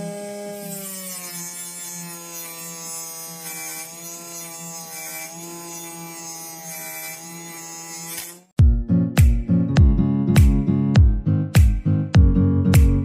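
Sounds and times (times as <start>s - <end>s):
table saw cutting board: 0.0s - 8.6s.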